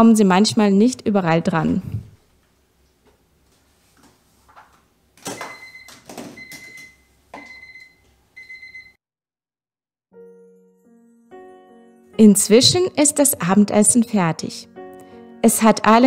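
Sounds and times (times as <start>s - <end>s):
soft background music: 10.2s - 16.0s.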